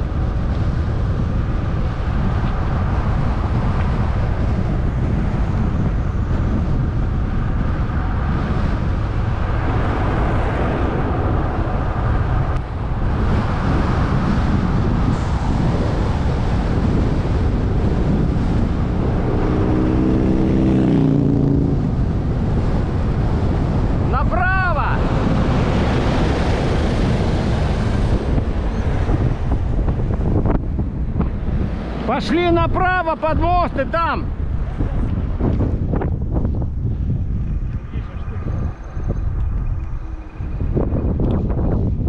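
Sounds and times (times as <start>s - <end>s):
wind buffeting microphone: 0.0s - 42.0s
multi-pitched humming tone: 34.4s - 42.0s.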